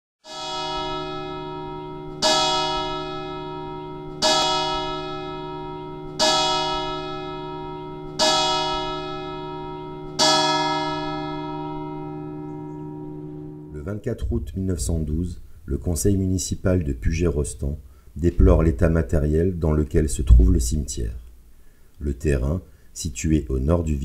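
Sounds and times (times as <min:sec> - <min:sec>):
bell tolling: 0:00.3 - 0:15.0
low hum: 0:11.6 - 0:15.8.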